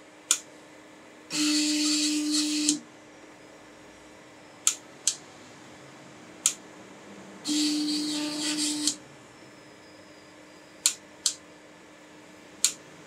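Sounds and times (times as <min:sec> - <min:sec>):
stepper motors whining: 0:01.3 - 0:02.8, 0:07.4 - 0:10.9.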